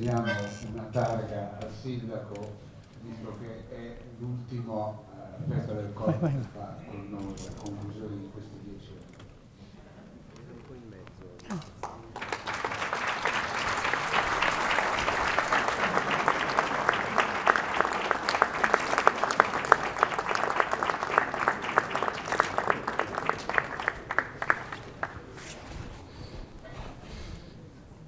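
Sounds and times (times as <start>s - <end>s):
audience applauding: 11.5s - 25.4s.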